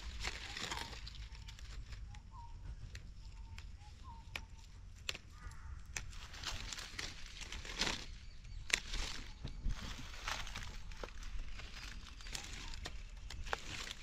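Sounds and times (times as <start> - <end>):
leaves rustling: 0.0 - 14.0
faint bird calls: 0.2 - 14.0
plant shoots snapping: 3.4 - 9.5.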